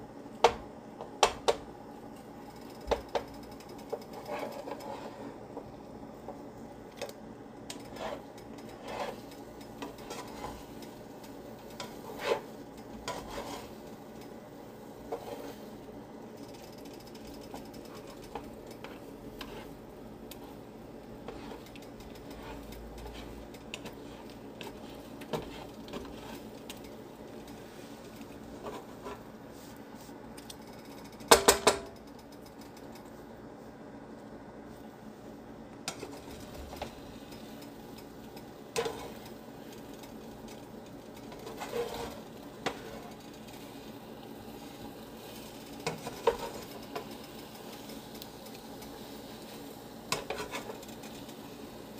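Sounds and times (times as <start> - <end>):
steady hum: 0.0 - 51.9
spatula scraping frying pan: 3.9 - 5.7, 7.8 - 16.0, 16.6 - 29.4, 38.6 - 39.8, 41.1 - 47.9, 49.0 - 51.3.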